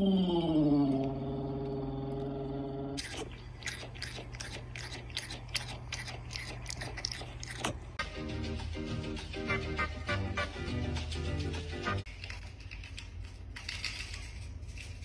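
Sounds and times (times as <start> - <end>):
cat chewing: 3.0 - 8.0.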